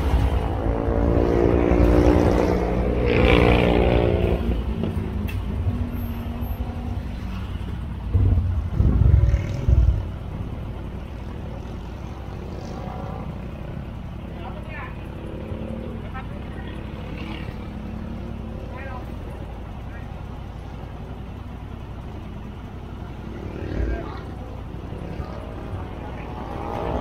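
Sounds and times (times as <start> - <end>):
motorcycle engine running: 0.0 - 27.0
loud low rumbling bursts: 8.0 - 12.5.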